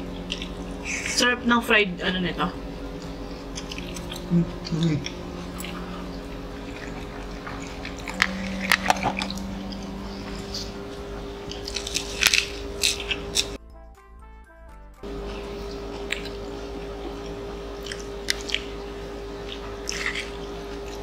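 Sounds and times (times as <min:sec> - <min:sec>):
chewing and crunchy bites: 0:00.0 - 0:00.8, 0:02.9 - 0:13.6, 0:15.2 - 0:21.0
lettuce leaves crunching: 0:03.0 - 0:13.6.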